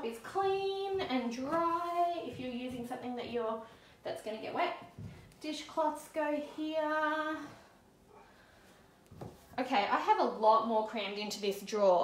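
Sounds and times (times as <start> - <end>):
woman's sing-song voice: 0.0 - 4.7, 5.4 - 7.7.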